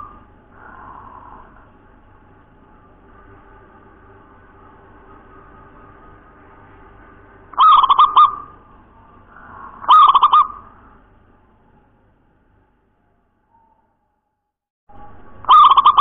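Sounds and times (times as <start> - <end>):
dove cooing: 7.5 - 10.9, 15.5 - 16.0.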